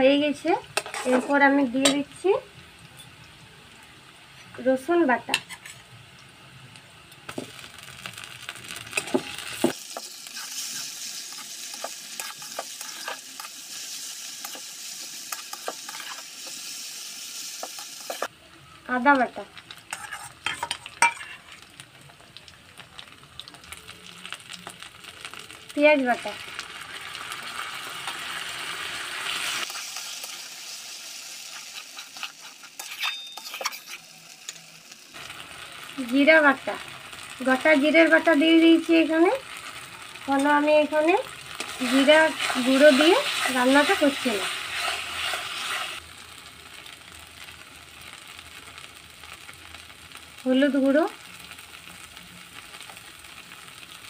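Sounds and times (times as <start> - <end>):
onions sizzling in hot oil: 0.0 - 54.0
metal spatula scraping a pan: 0.8 - 2.0, 5.3 - 5.9, 8.9 - 16.7, 19.8 - 21.6, 31.3 - 34.6, 41.6 - 46.0.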